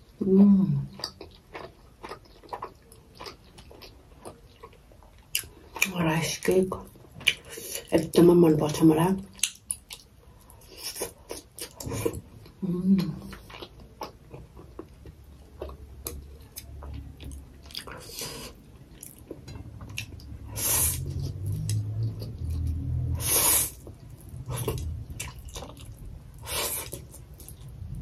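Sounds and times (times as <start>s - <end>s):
wet chewing sounds: 0.8s - 6.0s, 6.9s - 8.0s, 9.3s - 27.8s.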